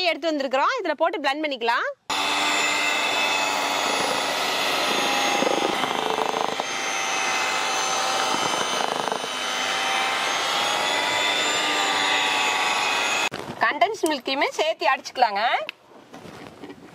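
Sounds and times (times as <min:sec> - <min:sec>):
electric hand mixer whipping cream: 0:02.1 - 0:13.3.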